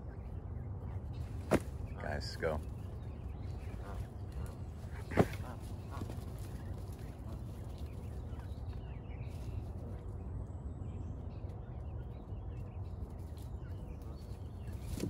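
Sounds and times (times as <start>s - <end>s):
goslings peeping: 2.0s - 10.2s.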